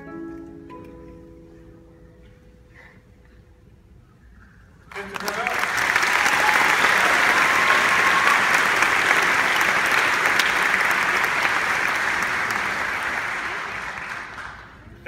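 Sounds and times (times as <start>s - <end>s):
large audience applauding: 4.9s - 14.9s.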